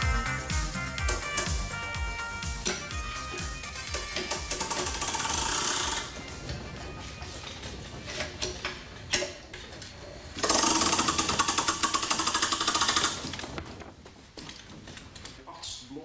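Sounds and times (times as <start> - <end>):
pulley clicks: 2.6 - 6.1, 10.4 - 13.6
pulley blocks rattling: 2.7 - 15.4.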